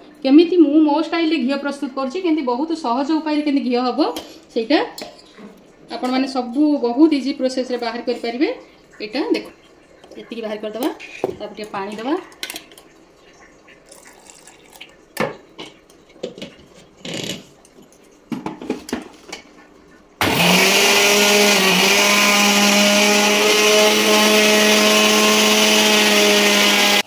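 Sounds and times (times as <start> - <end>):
kitchen containers clattering: 14.0 - 19.6
electric mixer grinder whine: 20.2 - 27.0.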